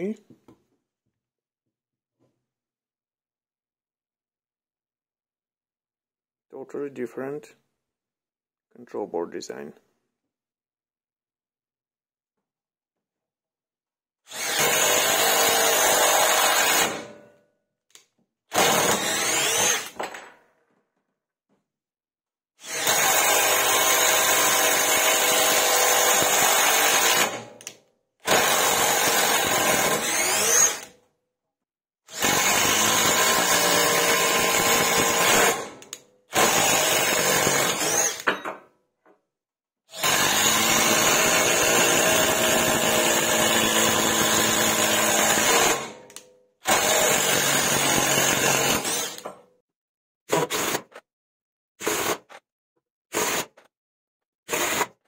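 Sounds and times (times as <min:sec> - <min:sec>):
impact driver driving screws into wood: 0:18.5 - 0:20.2, 0:22.6 - 0:30.9, 0:32.1 - 0:38.6, 0:40.0 - 0:49.4, 0:50.3 - 0:51.0, 0:51.8 - 0:52.4, 0:53.1 - 0:53.7, 0:54.5 - 0:55.0.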